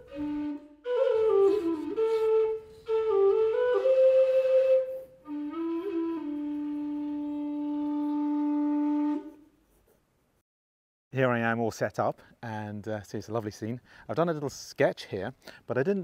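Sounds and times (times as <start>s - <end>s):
whistle playing a slow tune: 0.0s - 9.4s.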